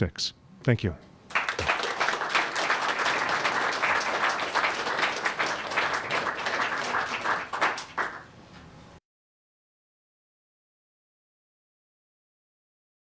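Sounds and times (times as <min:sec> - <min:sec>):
audience applauding: 0:01.3 - 0:08.3.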